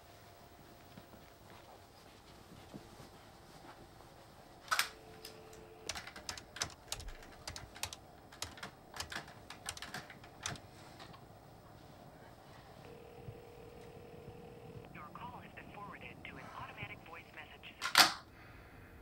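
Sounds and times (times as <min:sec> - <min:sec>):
dial tone: 0:12.9 - 0:14.9.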